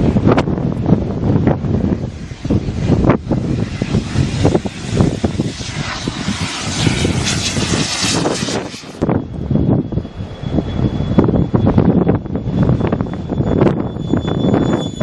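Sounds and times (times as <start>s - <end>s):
model jet turbine engine: 0.0s - 15.0s
wind buffeting microphone: 0.0s - 15.0s.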